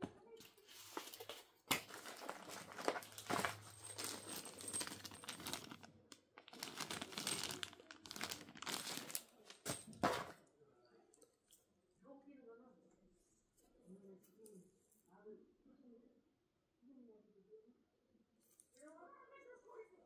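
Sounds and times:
plastic bag crinkling: 0.8s - 10.4s.

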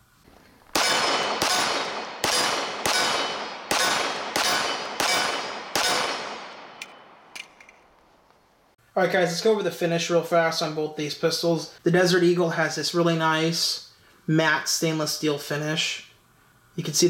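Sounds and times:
pistol shots echoing: 0.6s - 7.6s.

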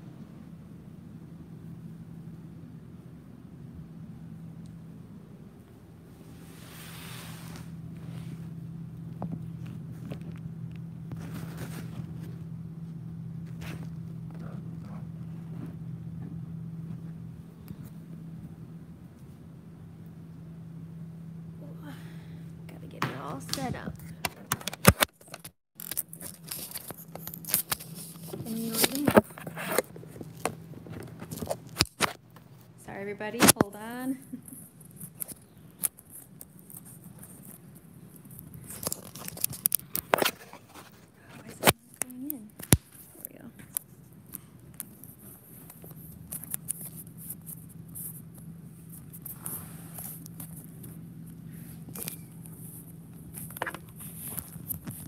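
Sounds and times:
steady low hum: 0.0s - 55.0s
camera handling rustling and scraping: 23.6s - 32.5s, 34.7s - 43.2s, 51.8s - 55.0s.

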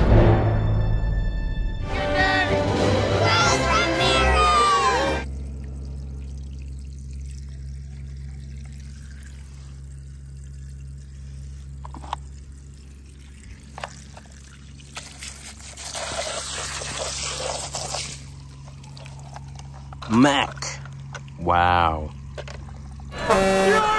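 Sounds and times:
water trickling and pouring: 5.2s - 23.2s.

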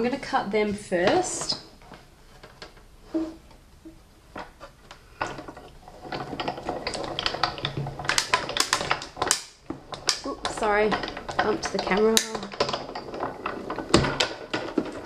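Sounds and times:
die-cutting machine clicking: 5.2s - 15.0s.

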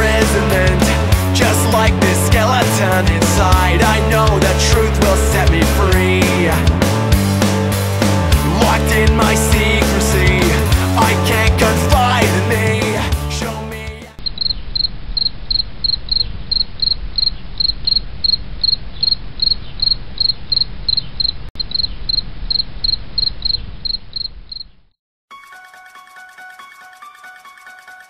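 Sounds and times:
cricket chirping: 14.2s - 24.8s
chiming bell-like melody: 25.3s - 28.0s.

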